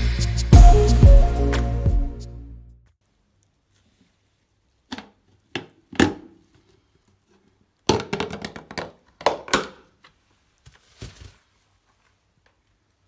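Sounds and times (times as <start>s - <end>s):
plastic bucket lid snapping: 4.9s - 6.4s, 7.9s - 9.8s.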